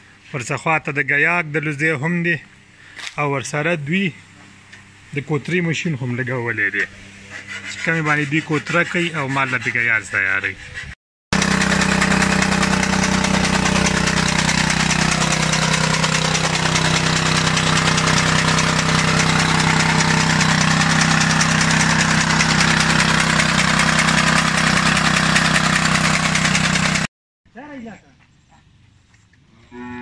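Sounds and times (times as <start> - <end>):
small petrol engine running: 11.3 - 27.1
chaff cutter chopping stalks: 11.4 - 27.1.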